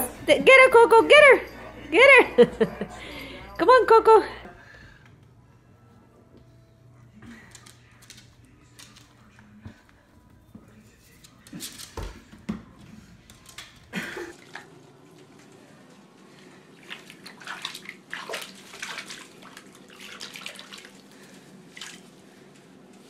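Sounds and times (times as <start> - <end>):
bathwater sloshing and splashing: 16.8 - 22.3.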